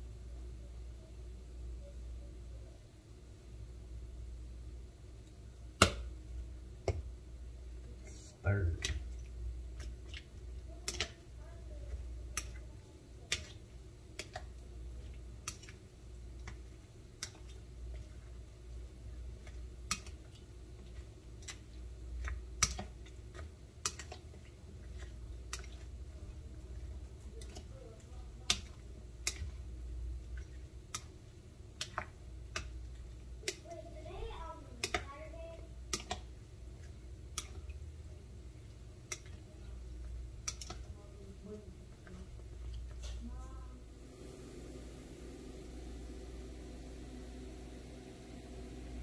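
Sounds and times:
steady low hum: 0:00.0 - 0:49.0
plastic paddle clicking against bowl: 0:10.8 - 0:11.2, 0:13.3 - 0:14.5, 0:22.2 - 0:24.3, 0:28.4 - 0:29.6, 0:31.7 - 0:32.8, 0:33.4 - 0:33.8, 0:34.8 - 0:35.2, 0:35.9 - 0:36.3, 0:39.0 - 0:39.4, 0:40.4 - 0:40.9.

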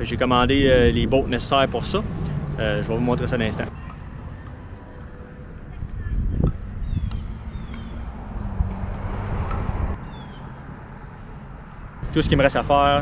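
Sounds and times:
wind rumble: 0:00.0 - 0:13.0
cricket chirping: 0:03.7 - 0:11.9.

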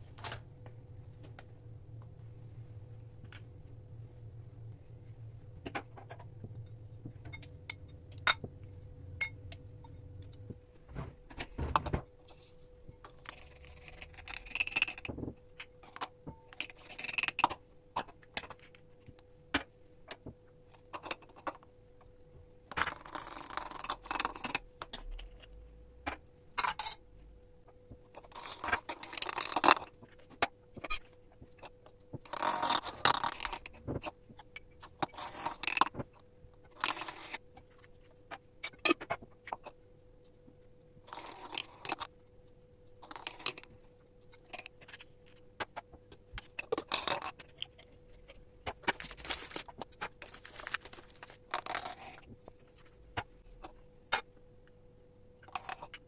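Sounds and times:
spice pouring and scraping rustle: 0:49.0 - 0:52.2.

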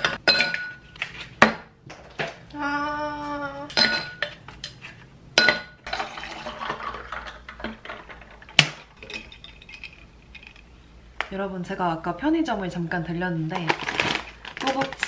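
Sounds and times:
ice cubes clinking into glass: 0:05.9 - 0:08.3.

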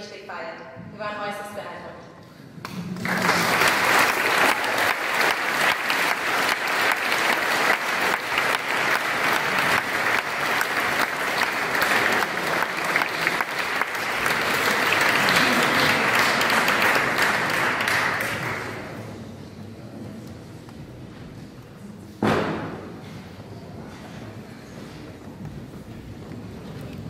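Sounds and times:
audience applauding: 0:02.7 - 0:19.1.

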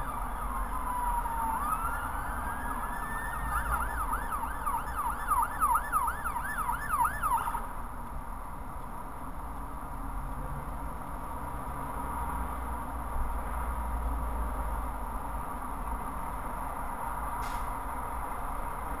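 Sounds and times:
emergency vehicle siren: 0:00.0 - 0:07.9
road rumble: 0:00.0 - 0:19.0.

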